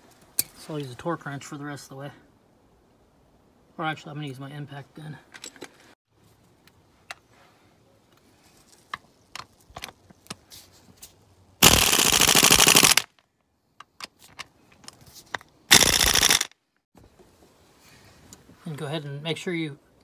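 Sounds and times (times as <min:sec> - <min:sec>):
impact wrench hammering: 0:15.7 - 0:16.5.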